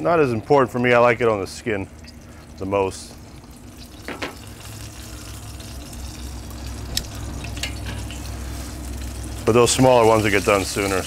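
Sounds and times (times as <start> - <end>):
meat sizzling on a grill: 2.2 - 11.0.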